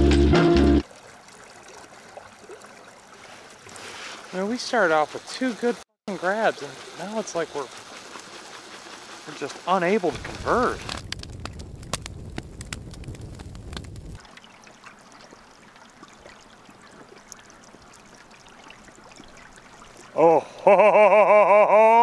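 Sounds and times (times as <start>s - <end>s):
river water running: 0.8s - 11.0s, 14.2s - 21.7s
man's voice: 9.4s - 10.8s
low rumble: 10.1s - 14.2s.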